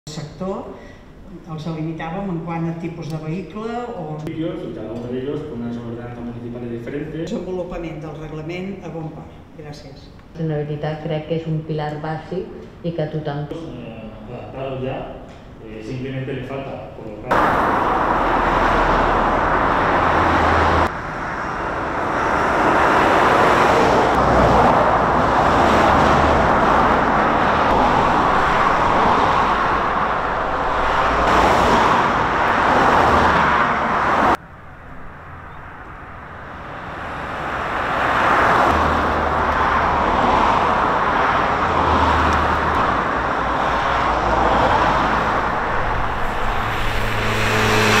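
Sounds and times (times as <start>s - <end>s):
cars passing at speed: 17.3s - 48.0s.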